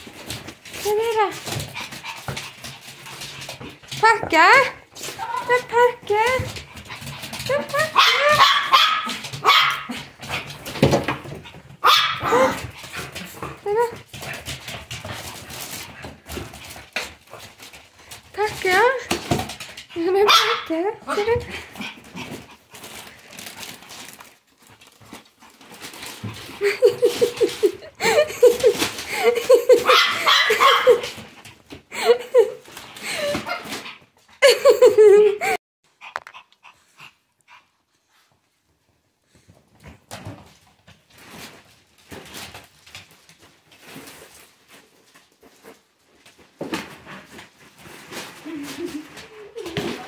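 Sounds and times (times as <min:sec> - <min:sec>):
plastic bag rustling: 0:00.0 - 0:11.8, 0:12.4 - 0:20.2, 0:21.2 - 0:31.4, 0:40.3 - 0:50.0
dog paws scuffling on parquet: 0:00.0 - 0:35.2, 0:39.2 - 0:50.0.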